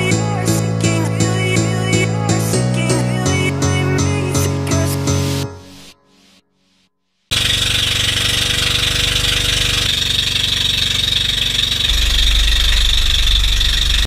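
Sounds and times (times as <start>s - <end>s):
boat engine droning: 7.3s - 14.0s
deeper rumble: 11.2s - 14.0s.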